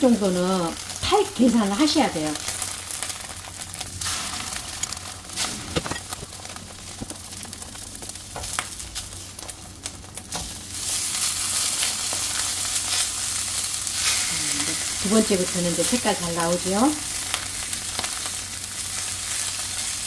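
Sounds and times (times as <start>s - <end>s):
fish sizzling in a frying pan: 0.0s - 20.0s.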